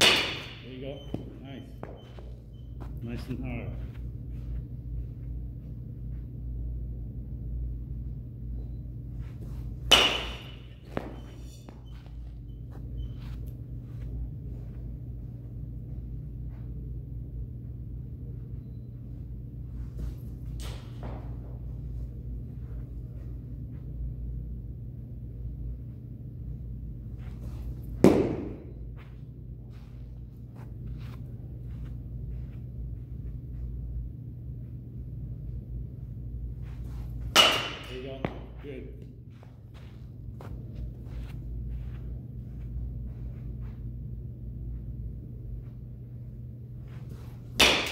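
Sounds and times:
baseball bat hitting ball: 0.0s - 0.7s, 9.8s - 11.4s, 27.9s - 28.8s, 37.2s - 38.6s, 47.5s - 47.9s
low steady hum: 0.0s - 47.9s.

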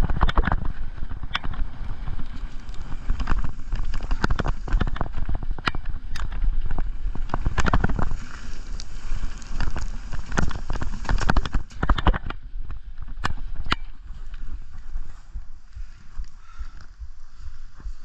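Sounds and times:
tyres rumbling over gravel: 0.0s - 12.3s
bike rattling over bumps: 0.0s - 18.0s.

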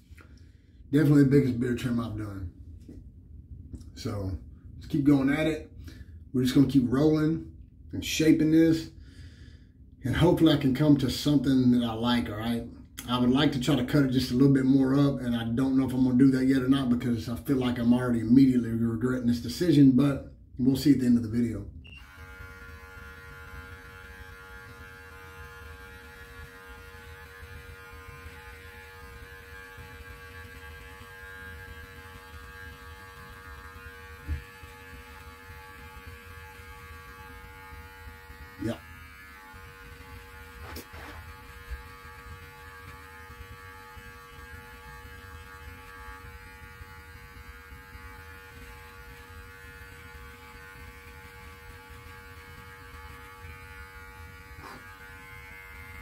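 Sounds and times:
electric clippers buzzing: 21.9s - 56.0s.

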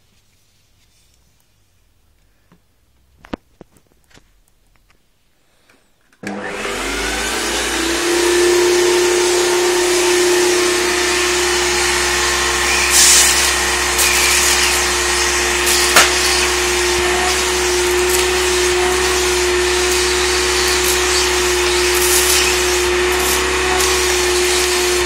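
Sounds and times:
vacuum cleaner whining: 6.2s - 25.0s.

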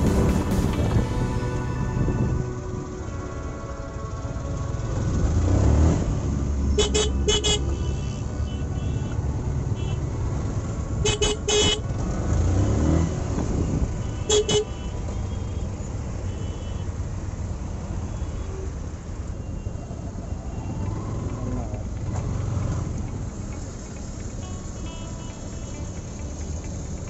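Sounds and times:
motorcycle engine rumble: 0.0s - 16.1s, 19.9s - 27.0s
slow-moving traffic: 0.0s - 27.0s
vehicle horn honks: 6.8s - 10.1s, 11.0s - 11.9s, 13.6s - 15.7s, 16.3s - 16.9s, 24.4s - 26.0s.

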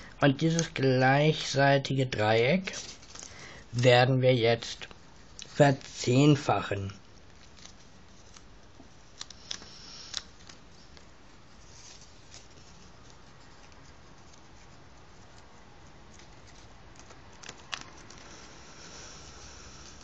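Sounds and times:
paper rustling: 0.0s - 20.0s
paper creases snapping: 0.4s - 0.8s, 7.3s - 11.1s, 15.2s - 18.5s.

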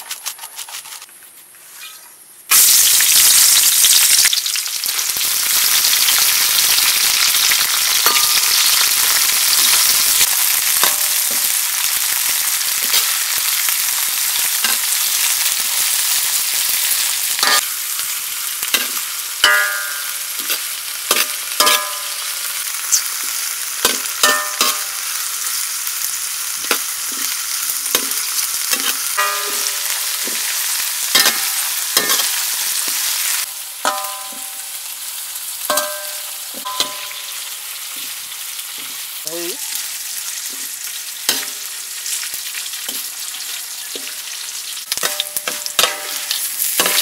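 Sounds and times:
frying in hot oil sizzling: 0.0s - 47.0s
metal ladle knocking wok: 18.8s - 20.2s, 21.1s - 22.3s, 23.8s - 25.0s, 28.7s - 30.4s, 33.8s - 34.6s, 35.7s - 37.4s, 45.0s - 47.0s.

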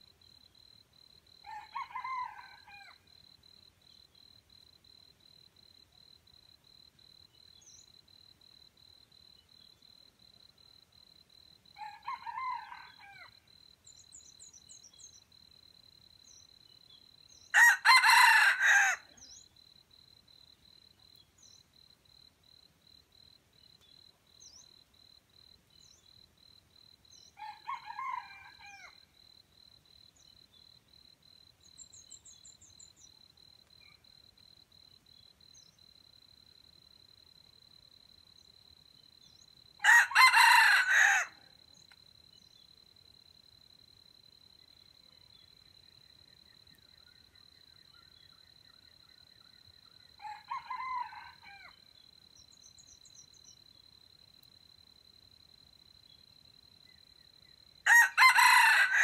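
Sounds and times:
roosters crowing: 17.6s - 19.1s, 39.8s - 41.4s, 50.2s - 51.7s, 57.9s - 59.0s.

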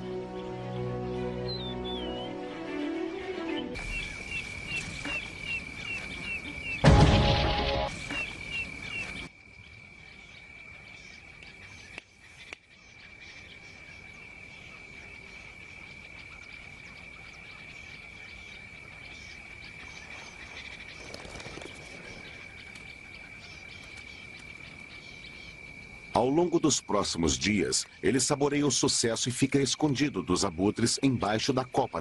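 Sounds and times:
faint insect chirps and ticks: 3.8s - 6.8s, 7.4s - 32.0s
high-pitched insect trill: 3.8s - 9.3s.

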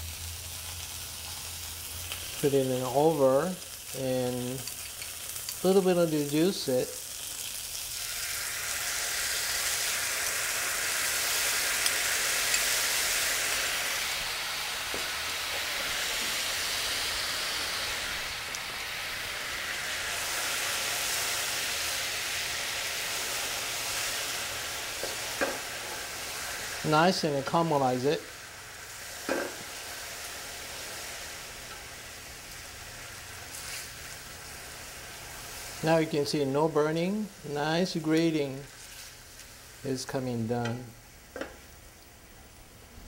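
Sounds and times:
sauce sizzling in a frying pan: 0.0s - 43.0s.

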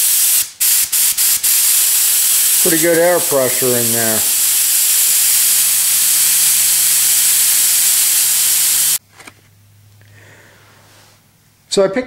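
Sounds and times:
compressed air hissing: 0.0s - 9.0s.

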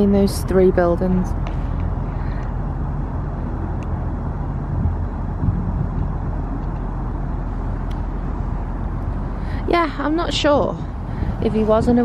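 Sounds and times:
distant city traffic rumble: 0.0s - 12.0s.

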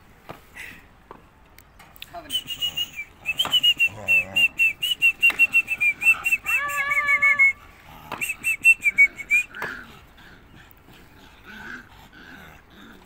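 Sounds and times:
puppy whining: 3.3s - 9.9s
puppy yelping: 3.5s - 7.6s.

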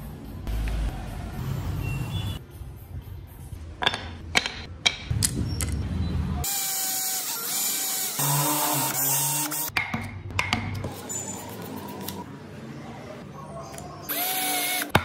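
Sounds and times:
wooden pieces knocking: 3.8s - 5.8s
cordless drill drilling into wood: 14.1s - 14.9s.

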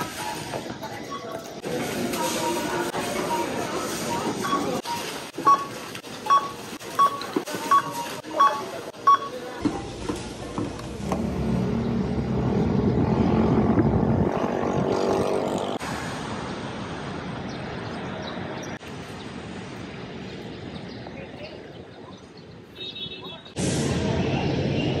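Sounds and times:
street traffic noise: 0.0s - 25.0s
barcode scanner beeps: 2.2s - 9.4s
passing vehicle engine: 10.9s - 17.8s.

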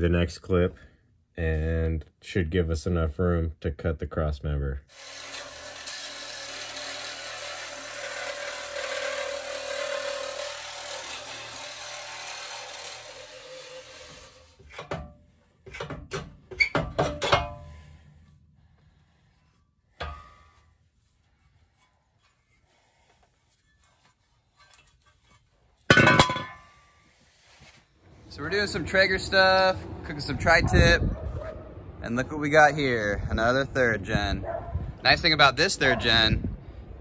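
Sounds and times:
power tool running: 4.9s - 14.7s
sharp metallic knocks: 14.8s - 17.7s, 25.9s - 26.6s.

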